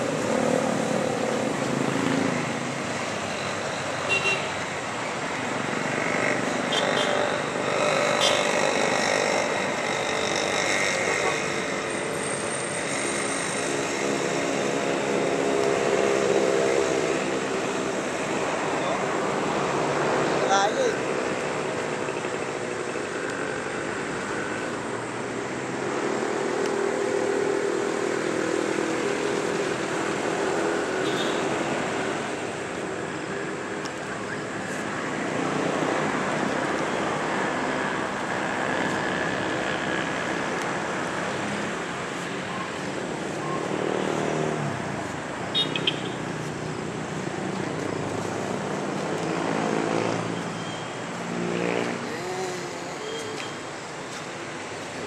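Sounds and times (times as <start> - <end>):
outdoor background noise: 0.0 - 55.0
faint voices: 52.0 - 53.6.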